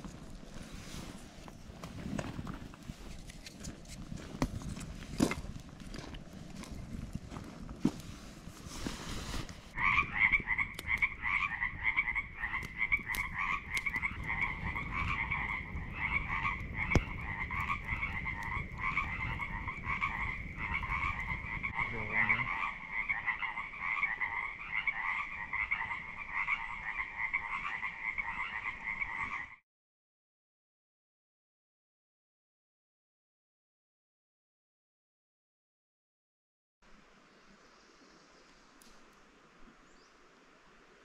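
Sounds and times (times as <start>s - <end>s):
frogs croaking: 9.8s - 29.6s.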